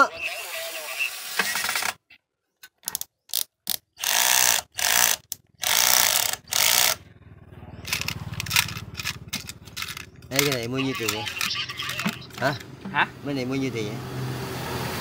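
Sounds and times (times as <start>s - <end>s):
rapid metallic ratchet clicking: 3.3s - 7.0s, 7.9s - 10.7s.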